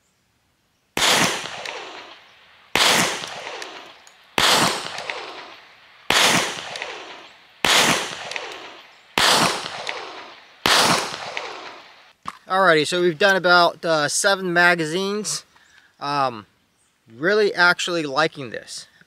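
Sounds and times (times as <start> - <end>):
pistol shots: 1.0 - 12.1.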